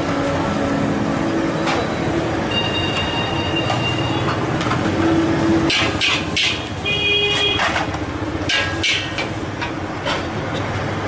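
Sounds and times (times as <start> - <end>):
traffic and motorbikes: 0.0 - 11.0
high-pitched tone: 1.2 - 4.3.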